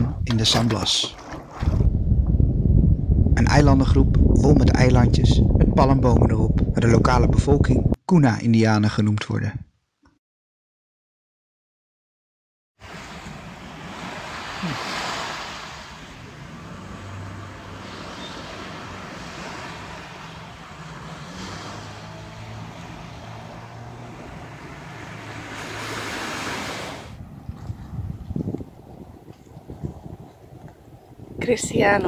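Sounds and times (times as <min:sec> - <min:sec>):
wind on microphone: 0:00.0 - 0:08.0, 0:12.8 - 0:32.0
waves washing onto sand: 0:12.8 - 0:27.2.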